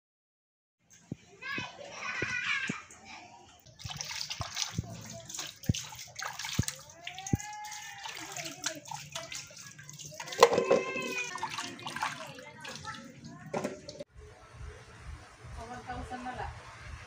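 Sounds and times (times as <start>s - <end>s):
water sloshing and splashing: 0.9s - 14.1s
voices: 1.0s - 17.0s.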